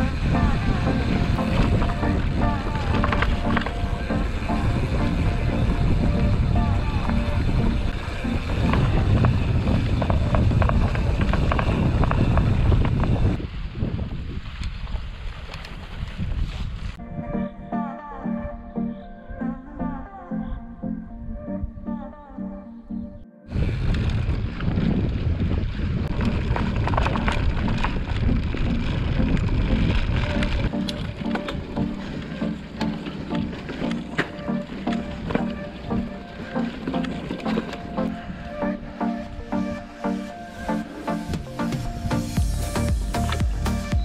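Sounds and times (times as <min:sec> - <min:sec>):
bike rattling and clicking: 0:00.0 - 0:17.0, 0:23.5 - 0:38.4, 0:42.4 - 0:44.0
wind buffeting microphone: 0:00.0 - 0:17.7, 0:23.5 - 0:44.0.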